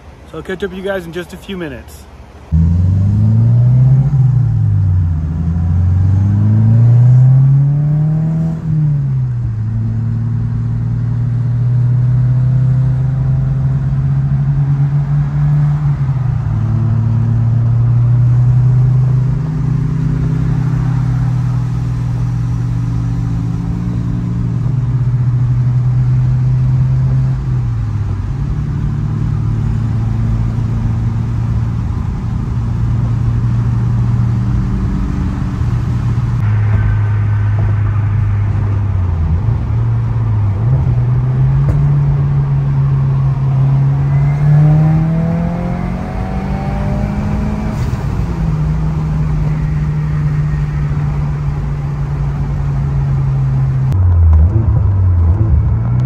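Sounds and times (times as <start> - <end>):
car engine accelerating and cruising: 2.4 - 56.0.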